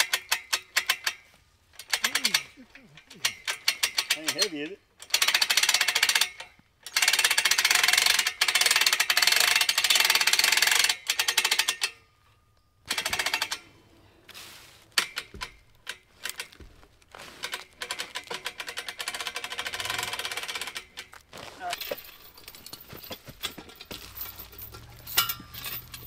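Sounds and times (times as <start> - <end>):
ratchet winch clicking: 0.0 - 1.2, 1.8 - 12.0, 12.9 - 13.6, 17.4 - 21.2.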